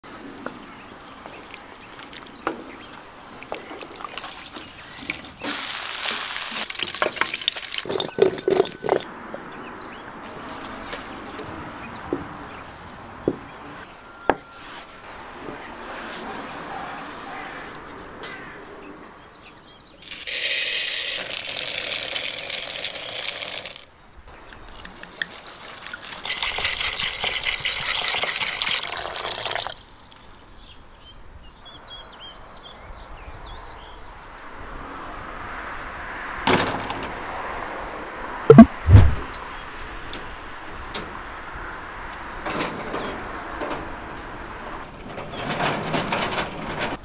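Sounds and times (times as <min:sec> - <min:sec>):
water pouring into a bowl: 0:03.4 - 0:09.0, 0:20.2 - 0:23.8, 0:24.7 - 0:30.2.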